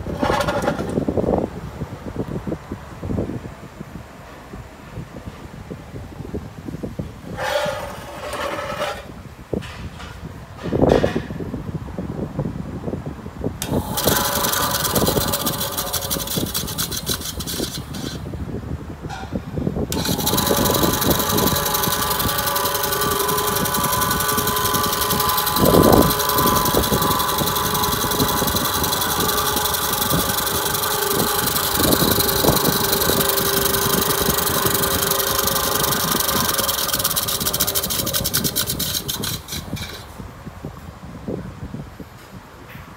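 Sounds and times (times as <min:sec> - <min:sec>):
bandsaw running: 0:13.6 - 0:18.2, 0:19.9 - 0:40.1.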